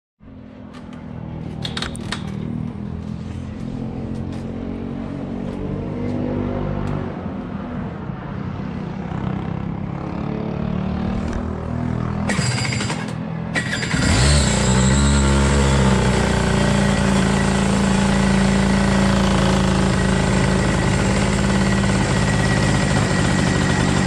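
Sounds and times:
kart engine running: 12.1s - 24.0s.

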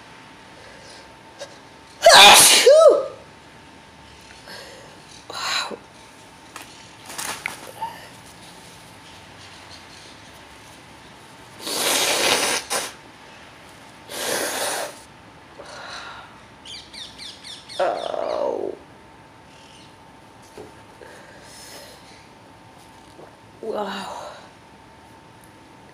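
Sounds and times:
man sneezing: 2.0s - 3.0s.

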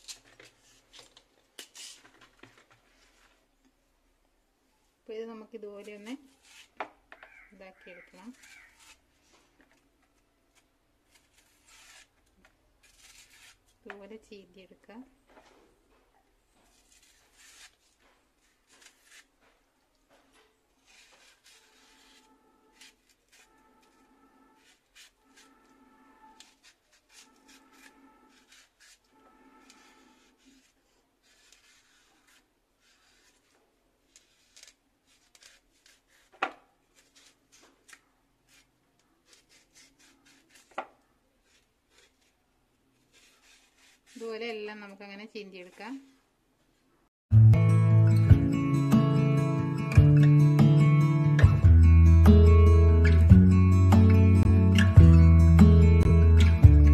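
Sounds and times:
knife scraping stalk: 5.8s - 9.0s, 10.5s - 14.0s, 16.6s - 19.3s, 20.8s - 42.4s, 43.0s - 44.6s.

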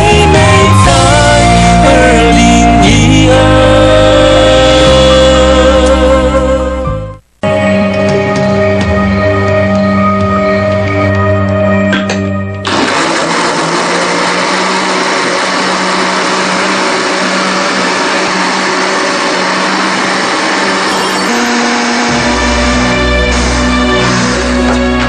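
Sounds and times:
music: 0.0s - 12.7s, 20.9s - 25.0s
blender running: 12.6s - 22.4s.

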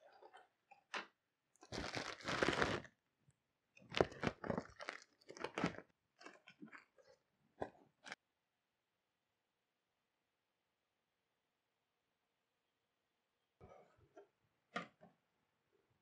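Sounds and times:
plastic packing crinkling: 1.6s - 2.9s, 3.8s - 7.1s.

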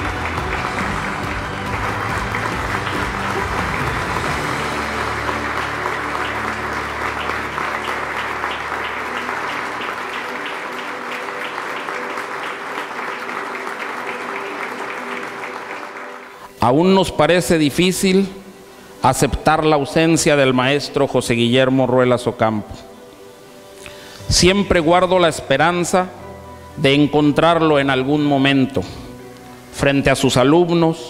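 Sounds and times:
audience applauding: 0.0s - 16.6s.

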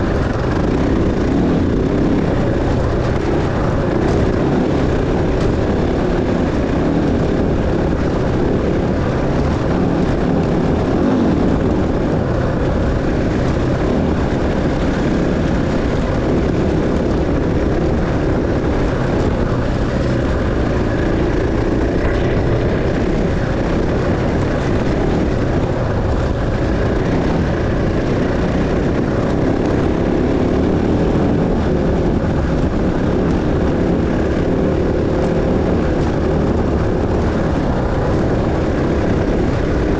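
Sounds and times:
dense rushing noise: 0.0s - 39.9s
dirt bike engine running: 0.0s - 39.9s.

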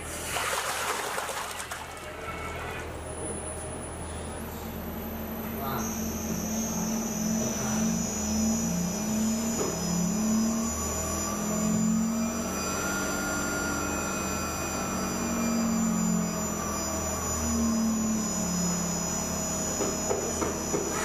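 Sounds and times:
water churning in a tank: 0.0s - 2.9s
motor hum: 0.0s - 21.0s.

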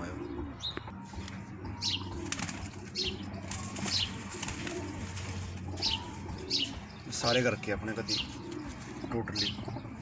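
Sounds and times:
pigeons cooing: 0.0s - 10.0s
wings fluttering: 2.1s - 6.8s.

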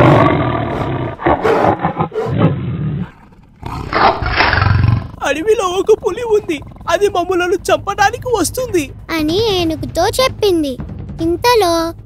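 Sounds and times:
tiger roaring: 0.0s - 7.9s.

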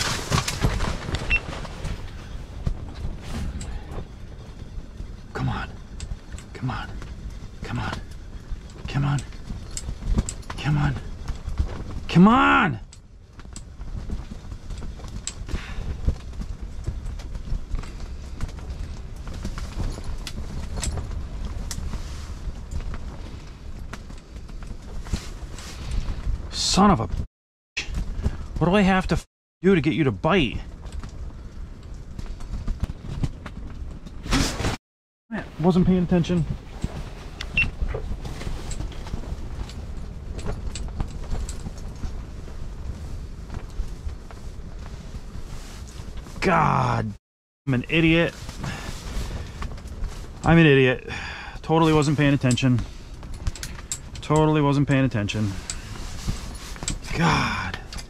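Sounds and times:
low wind rumble: 0.0s - 58.0s
wind rumbling on microphone: 12.8s - 27.3s, 35.4s - 46.9s.

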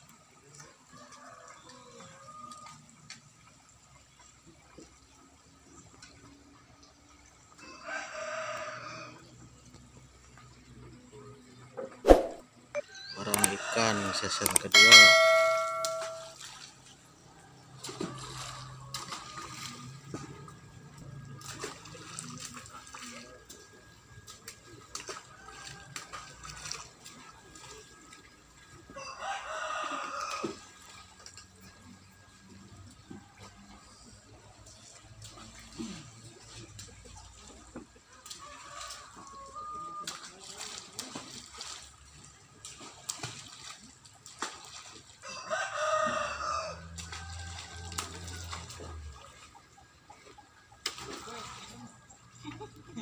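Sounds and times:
rooster crowing: 7.6s - 9.2s, 13.2s - 16.2s, 29.0s - 30.7s, 45.2s - 48.7s
water washing: 13.3s - 16.9s.

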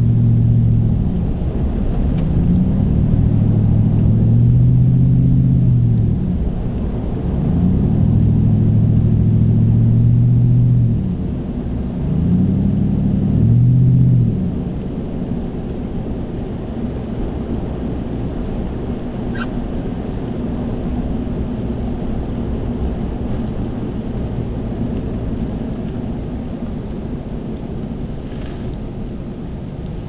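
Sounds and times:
engine and tyre rumble: 0.0s - 30.0s.

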